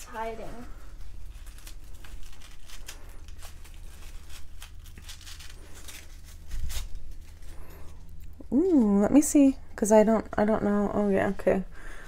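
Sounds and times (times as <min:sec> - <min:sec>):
paper wrapping crinkling and tearing: 0:00.0 - 0:09.0
paper rustle: 0:00.1 - 0:08.2.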